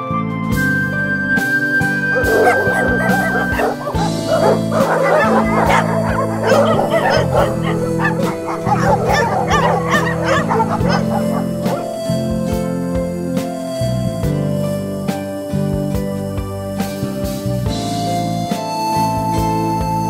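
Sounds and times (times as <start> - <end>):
background music: 0.0 - 20.0
puppies yipping: 2.0 - 12.2.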